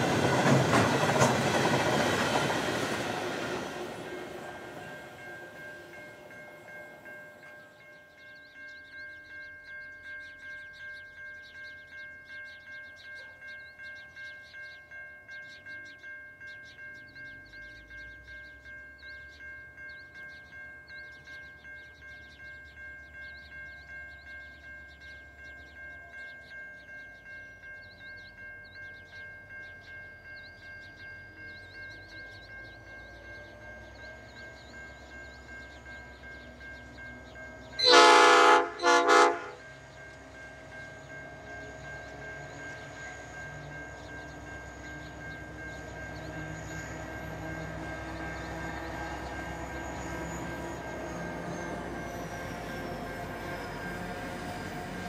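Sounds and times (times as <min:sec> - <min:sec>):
level crossing warning bell: 0:00.0 - 0:55.0.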